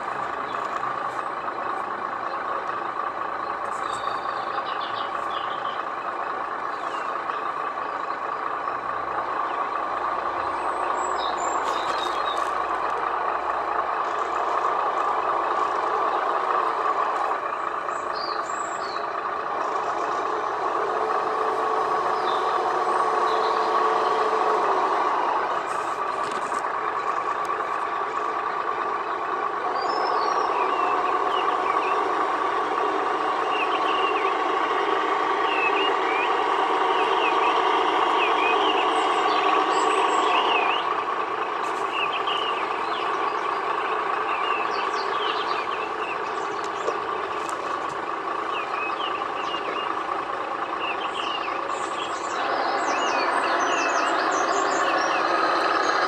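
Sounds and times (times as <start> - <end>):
simulated diesel engine from speaker: 0.0 - 56.0.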